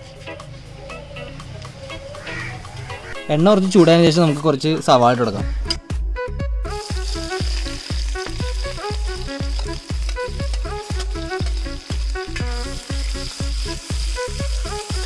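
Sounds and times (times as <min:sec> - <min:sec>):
background music with steady beat: 0:00.0 - 0:15.0
onions sizzling in hot oil: 0:06.7 - 0:15.0.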